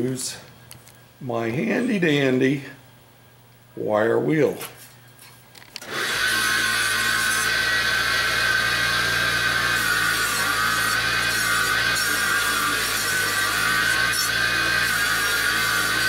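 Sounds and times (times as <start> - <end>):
bench grinder wire wheel whining: 5.8 - 16.0.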